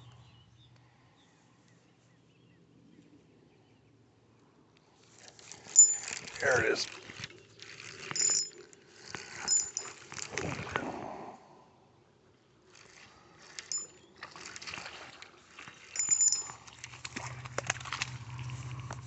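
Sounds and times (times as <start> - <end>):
fishing reel clicks and rattles: 5.3 - 10.3, 12.7 - 15.1, 15.7 - 18.2
high metallic pings: 5.8 - 6.1, 9.5 - 9.9, 16.0 - 16.6.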